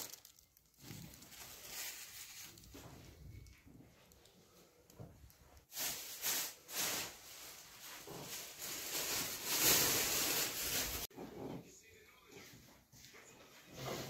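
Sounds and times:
plastic bags rustling: 0.0 - 4.2, 5.5 - 11.1.

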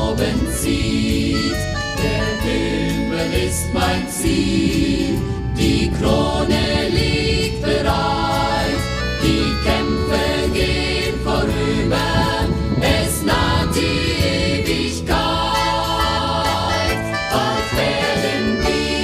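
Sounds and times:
choir singing with instruments: 0.0 - 19.0.

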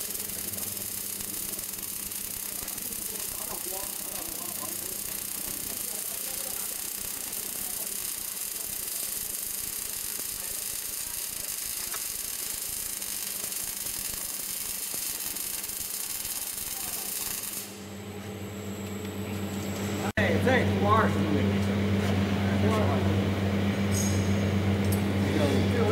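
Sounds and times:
low machine hum: 0.0 - 12.0, 16.8 - 25.9
welding arc hissing: 0.0 - 17.9.

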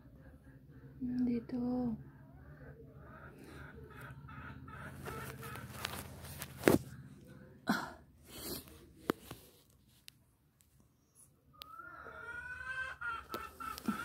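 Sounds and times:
phone being handled: 5.0 - 6.9.

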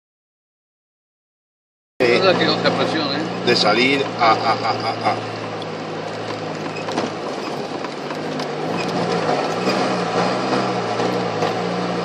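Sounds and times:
vehicle engine from inside cabin: 2.0 - 12.0
vehicle clicks and rattles: 3.5 - 12.0.

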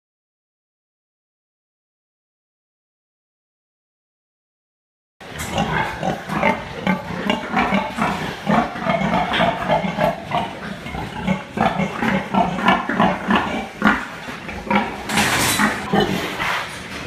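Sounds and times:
pigs grunting: 5.2 - 17.0.

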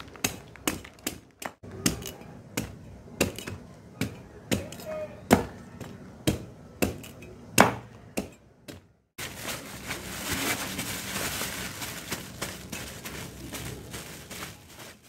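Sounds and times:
plastic bag rustling: 0.0 - 1.0, 9.2 - 15.0
knife chopping fruit rind: 0.2 - 8.9.

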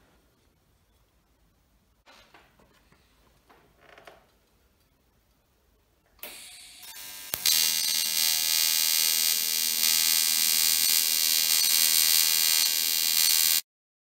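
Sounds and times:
welding arc striking click: 6.2 - 13.6
welding arc buzzing: 6.2 - 13.7.

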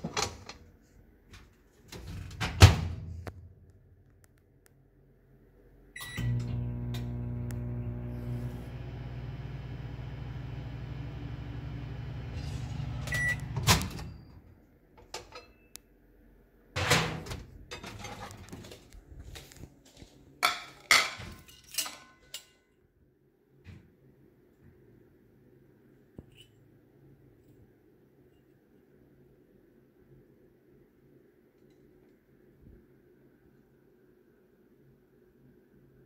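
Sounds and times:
microwave beep: 6.0 - 14.4
microwave oven humming: 6.0 - 14.5.

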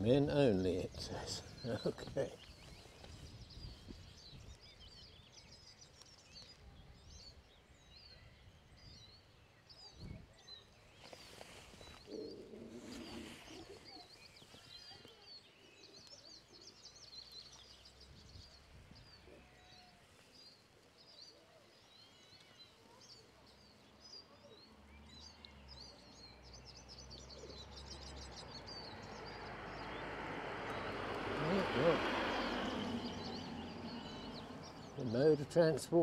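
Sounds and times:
small birds chirping: 0.0 - 36.0
car passing on road: 26.6 - 35.9.

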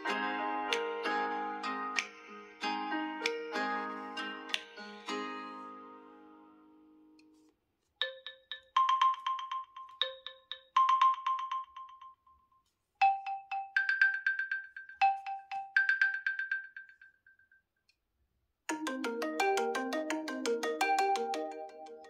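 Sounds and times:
marimba-like ringtone melody: 0.0 - 5.6, 8.0 - 12.4, 13.0 - 17.4, 18.7 - 22.0.

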